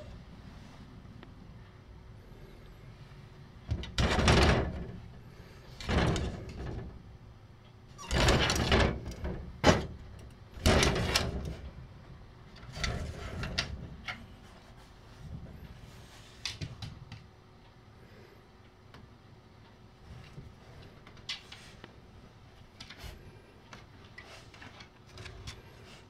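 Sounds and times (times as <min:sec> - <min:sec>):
sliding door rattling in its track: 0:03.7 - 0:07.1, 0:08.0 - 0:11.8, 0:12.6 - 0:14.0.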